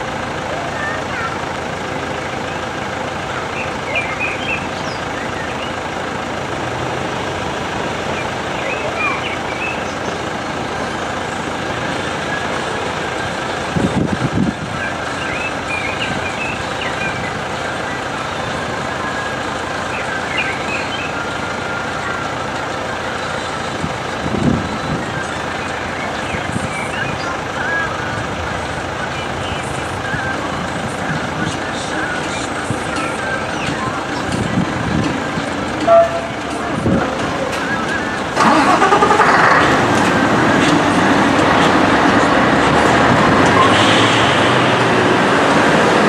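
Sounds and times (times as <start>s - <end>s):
level crossing bells ringing: 31.8s - 39.2s.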